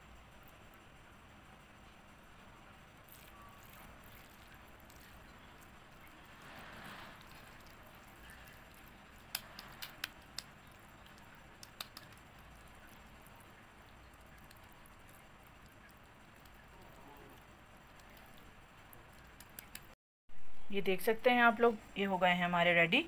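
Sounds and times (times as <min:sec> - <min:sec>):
hands squishing raw mince: 0:07.2 - 0:19.9.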